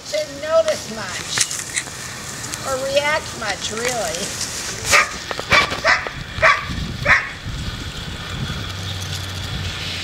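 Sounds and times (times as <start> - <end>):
puppies yipping: 4.9 - 7.4.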